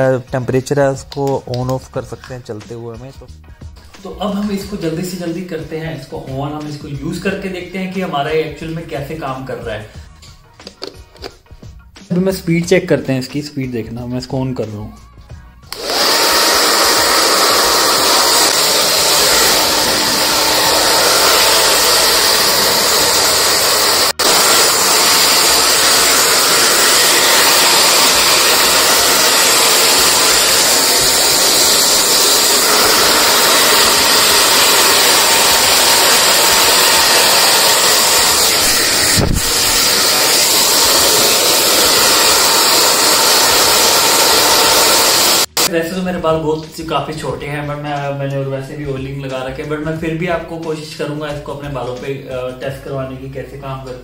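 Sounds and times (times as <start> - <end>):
hair dryer running: 15.6 - 45.7.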